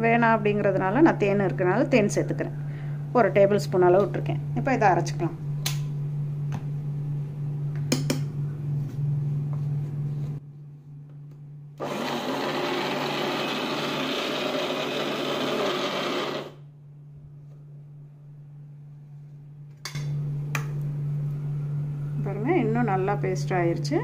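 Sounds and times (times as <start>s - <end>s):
steady low hum: 0.0s - 11.8s, 16.6s - 24.0s
mixer grinder running: 11.8s - 16.6s.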